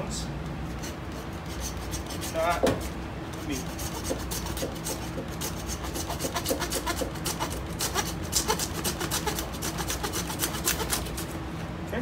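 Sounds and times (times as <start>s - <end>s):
hand saw rasping through bone: 0.8s - 11.3s.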